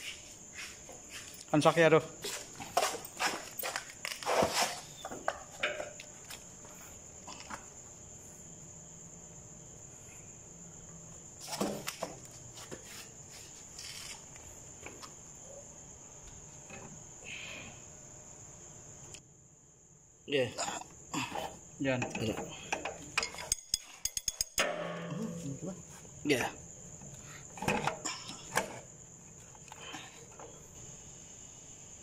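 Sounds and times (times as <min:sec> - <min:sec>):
cricket trilling: 0:00.0 - 0:32.0
metal knocks and clinks: 0:22.0 - 0:25.5.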